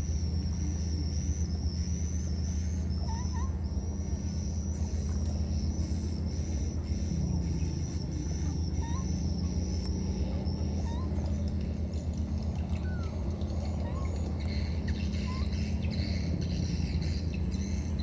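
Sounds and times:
high-pitched whine: 0:00.0 - 0:18.0
low hum: 0:00.0 - 0:18.0
baby monkeys squeaking: 0:02.5 - 0:03.6, 0:07.7 - 0:11.4, 0:13.8 - 0:15.6.

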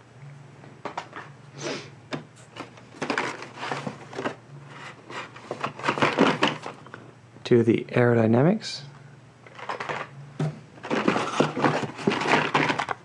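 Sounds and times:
cardboard and plastic packs rustling: 0:02.4 - 0:06.9, 0:09.5 - 0:13.0.

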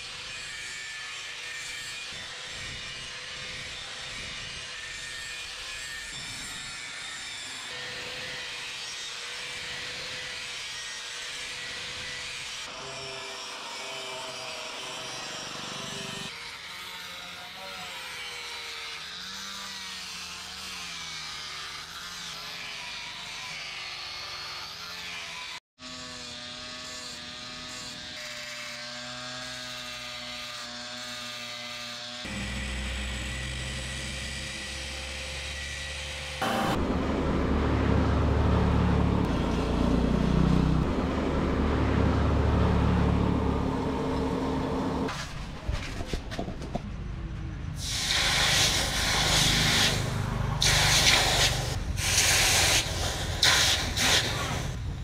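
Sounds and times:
angle grinder grinding steel: 0:00.0 - 0:45.4, 0:47.8 - 0:55.0.

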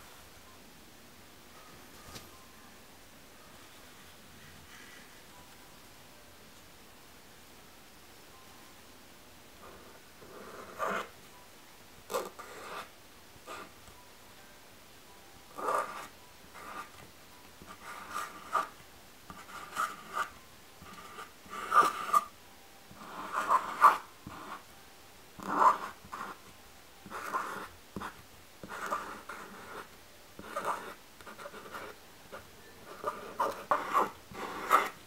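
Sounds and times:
marker strokes on chalkboard: 0:22.9 - 0:24.6, 0:27.1 - 0:32.0, 0:32.8 - 0:35.0.

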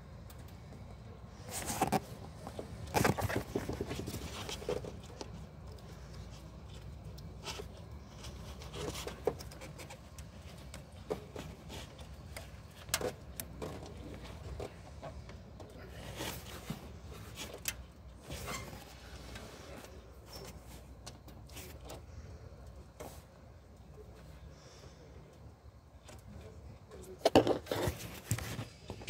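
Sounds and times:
plastic connector clicks and scrapes: 0:01.5 - 0:13.9.

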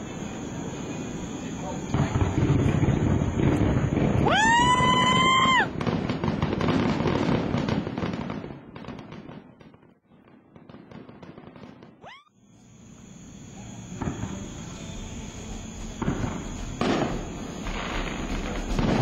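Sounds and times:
high firework whistle: 0:00.0 - 0:07.2, 0:11.9 - 0:19.0
fireworks bursting and crackling: 0:00.0 - 0:19.0.

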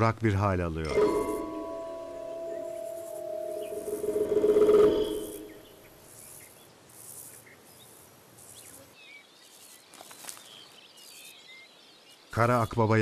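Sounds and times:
background music: 0:00.9 - 0:05.8
insects chirping: 0:01.0 - 0:12.4
small birds chirping: 0:01.1 - 0:13.0.

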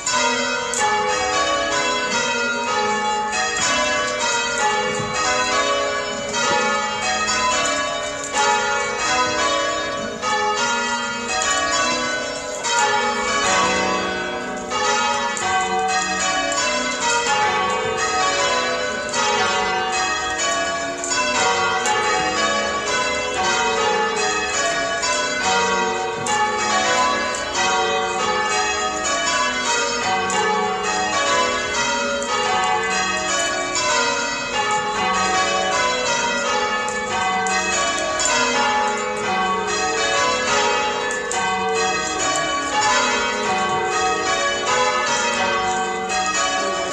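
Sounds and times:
church bells ringing: 0:00.0 - 0:46.9.

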